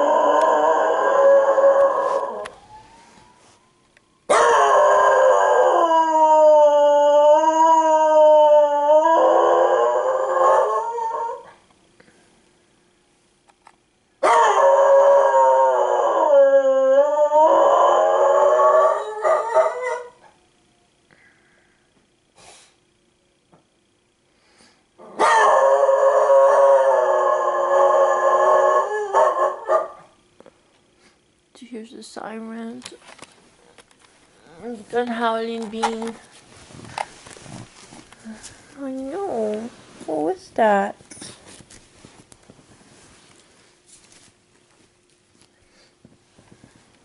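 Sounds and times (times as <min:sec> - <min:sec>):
dog howling: 0:00.0 - 0:03.0, 0:04.3 - 0:11.5, 0:14.2 - 0:20.3, 0:25.0 - 0:30.1.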